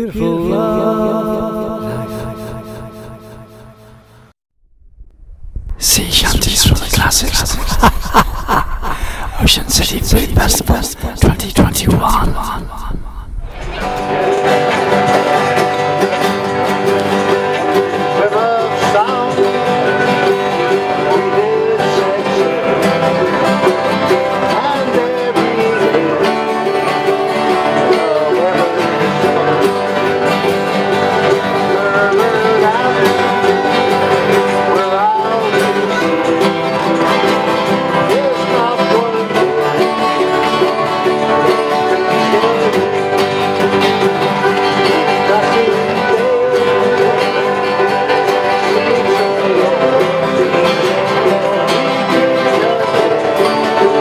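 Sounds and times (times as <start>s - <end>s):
group singing sea shanty: 0.0s - 3.8s
strummed acoustic guitars: 0.0s - 4.2s, 6.0s - 12.6s, 13.5s - 54.0s.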